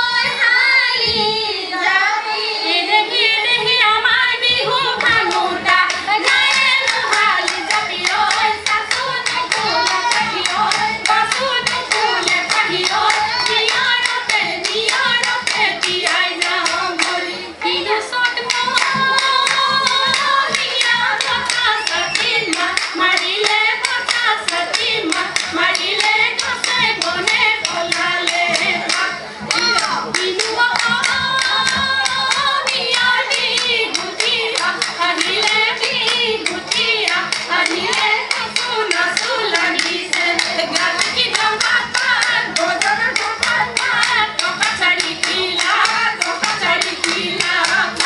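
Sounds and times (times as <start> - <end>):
women singing: 0.0 - 48.0
quick hand-clapping: 18.4 - 48.0.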